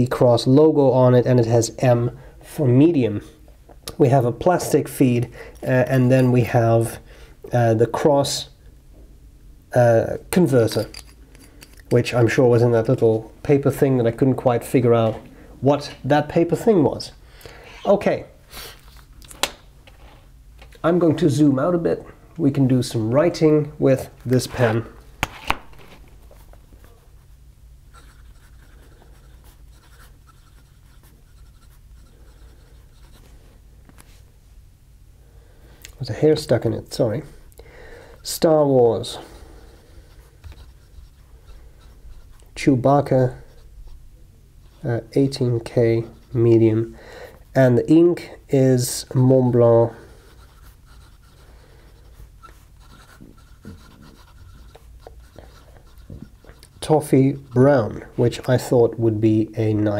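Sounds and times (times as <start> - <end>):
fountain pen nib scratching paper: 50.3 - 58.1.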